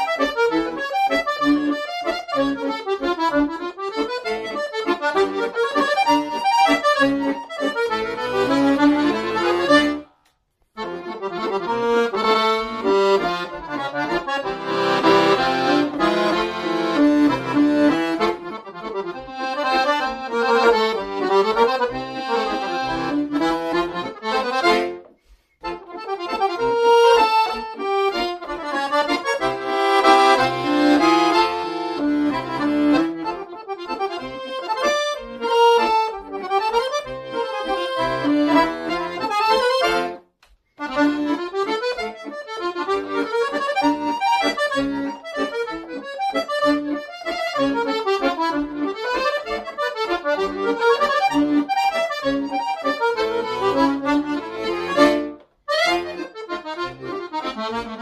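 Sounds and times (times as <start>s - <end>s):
accordion playing a tune: 0.0s - 58.0s.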